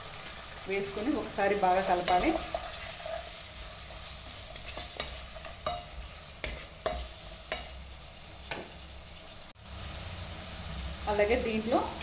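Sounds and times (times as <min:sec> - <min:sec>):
food sizzling in a pan: 0:00.0 - 0:12.0
spatula scraping a pan: 0:01.7 - 0:08.8.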